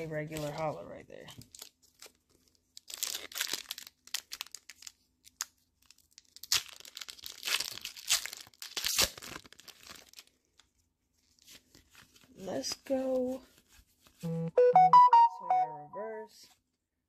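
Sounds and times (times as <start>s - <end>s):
foil pack tearing and crinkling: 1.4s - 10.6s.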